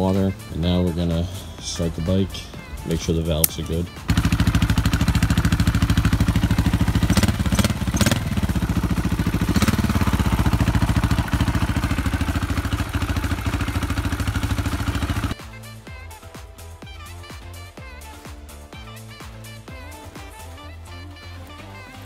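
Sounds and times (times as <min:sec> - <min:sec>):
motorcycle engine idling and revving: 0:00.0 - 0:16.1.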